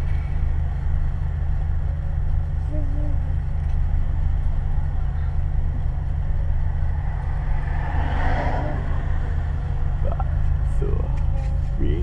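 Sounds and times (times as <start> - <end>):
car engine idling: 0.0 - 12.0
car passing by: 6.8 - 10.0.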